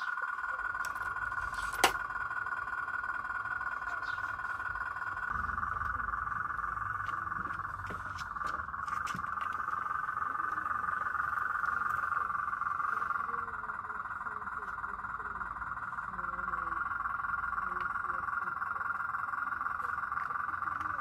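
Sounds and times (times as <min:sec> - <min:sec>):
frogs calling: 0:00.0 - 0:21.0.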